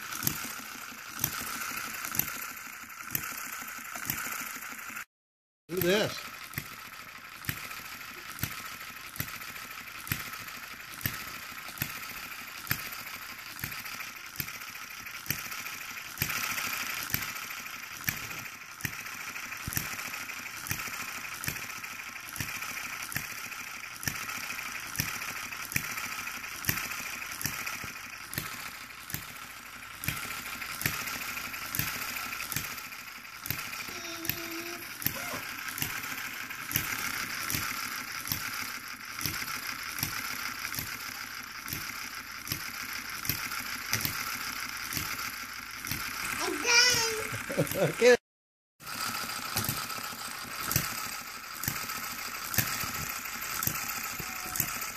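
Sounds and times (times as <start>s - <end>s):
small gas engine popping: 0.0s - 5.1s, 5.7s - 48.2s, 48.8s - 54.9s.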